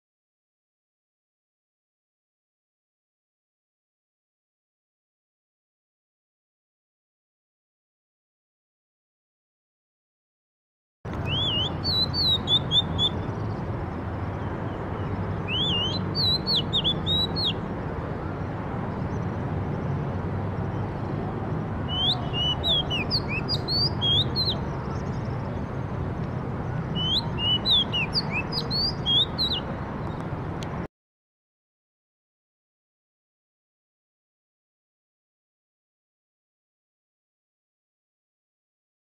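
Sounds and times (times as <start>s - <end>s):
bird singing whistled phrases: 11.2s - 13.3s, 15.4s - 17.6s, 21.9s - 24.6s, 26.9s - 29.7s.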